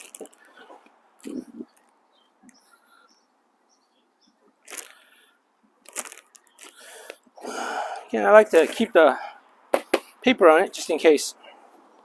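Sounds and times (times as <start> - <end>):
rustling scrape of wrapping: 4.7 - 5.1, 5.9 - 7.0.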